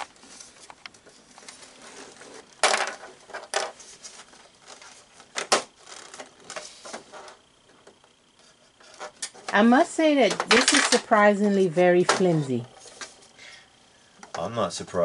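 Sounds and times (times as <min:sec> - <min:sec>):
hard plastic parts clacking: 0:02.6 - 0:03.8, 0:10.2 - 0:11.0.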